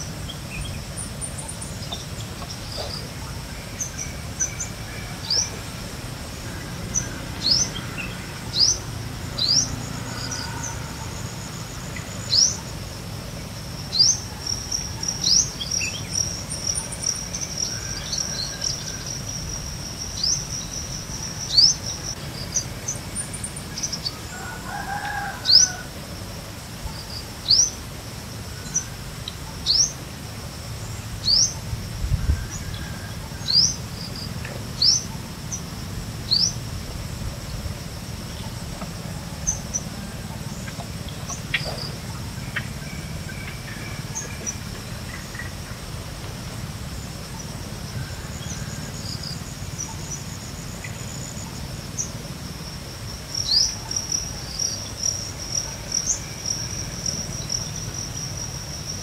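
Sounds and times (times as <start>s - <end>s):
steady high whine: 25.4s - 59.0s.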